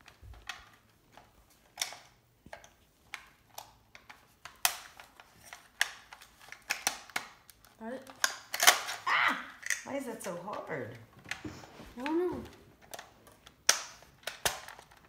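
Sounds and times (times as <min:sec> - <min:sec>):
plastic toy blaster clicks and rattles: 0:00.0 - 0:09.0, 0:12.8 - 0:15.0.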